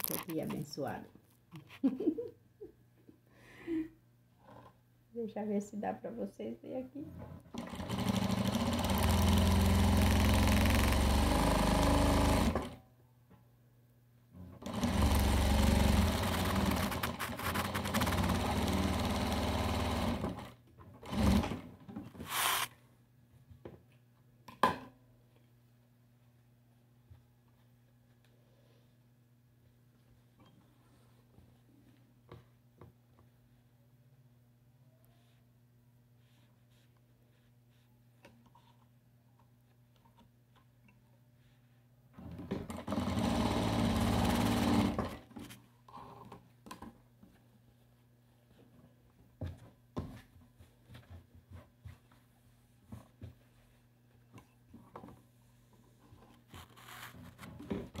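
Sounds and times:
sewing machine stitching: 7.5s - 12.8s, 14.6s - 22.7s, 42.3s - 45.2s.

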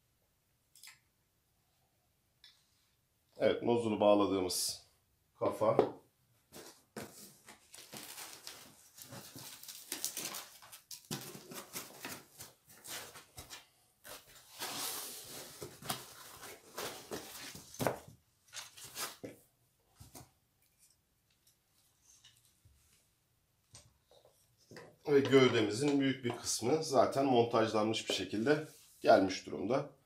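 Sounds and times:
plastic packaging crinkling: 6.6s - 17.7s.

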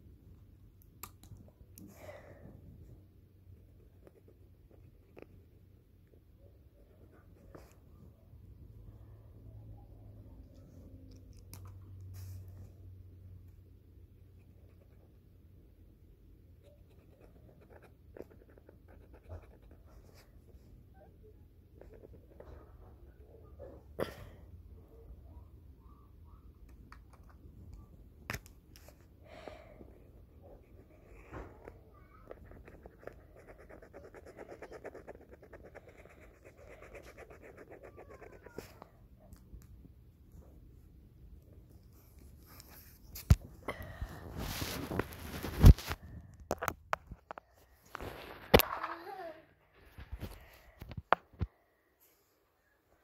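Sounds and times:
marker scratching on paper: 16.6s - 20.5s, 30.5s - 38.8s.

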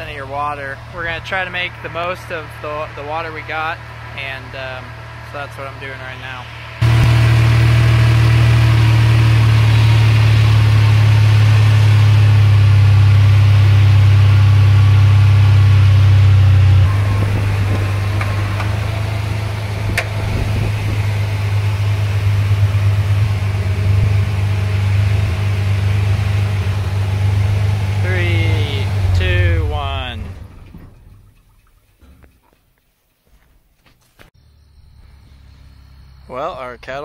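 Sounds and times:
pump engine running: 0.0s - 32.0s.

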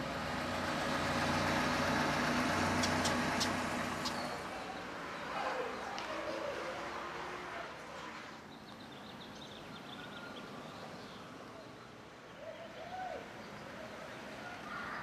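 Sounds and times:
faint outdoor noise: 0.0s - 15.0s
high bird chirps: 2.8s - 4.5s.

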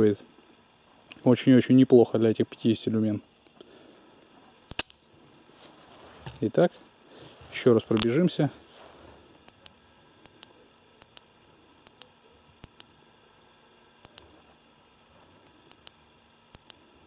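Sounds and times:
headlamp switch clicking: 4.7s - 5.0s, 9.5s - 11.2s, 11.8s - 12.9s, 14.0s - 14.2s, 15.7s - 16.8s.

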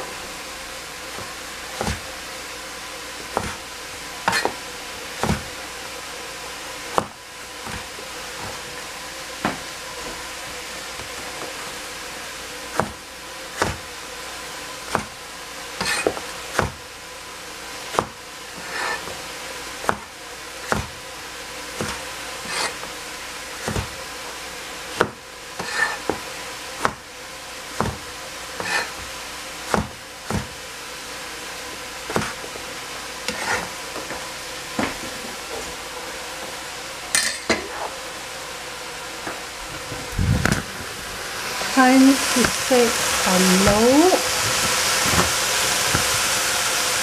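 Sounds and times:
cleaver chopping on cutting board: 1.2s - 2.1s, 3.3s - 3.6s, 4.3s - 4.6s, 5.2s - 5.5s, 6.9s - 8.6s, 12.7s - 13.0s, 13.6s - 13.9s, 14.9s - 15.2s, 15.8s - 16.8s, 17.9s - 19.1s, 19.8s - 21.0s, 21.8s - 22.9s, 23.6s - 24.0s, 25.0s - 26.2s, 26.8s - 27.0s, 27.8s - 29.1s, 29.7s - 30.6s, 32.1s - 32.4s.

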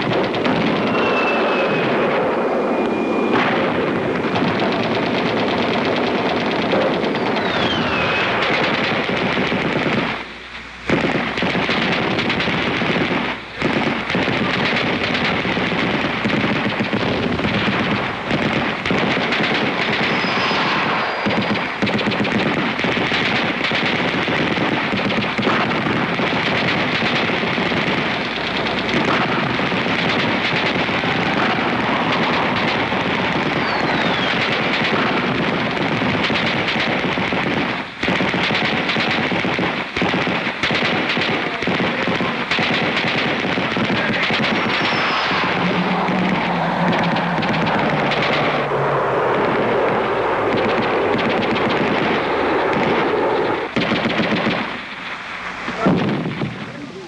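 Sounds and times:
rapid machine-gun fire: 0.0s - 57.0s
short falling whistle: 0.7s - 3.8s, 7.4s - 8.6s, 31.2s - 34.4s.

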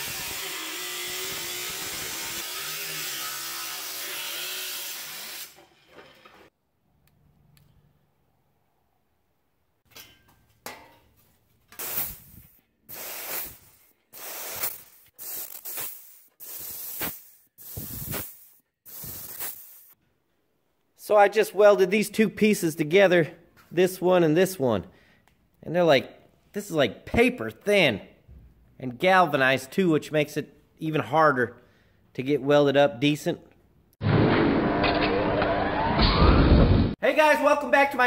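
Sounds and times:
angle grinder grinding steel: 0.0s - 6.5s
pneumatic punch tool bursts: 11.8s - 20.0s.

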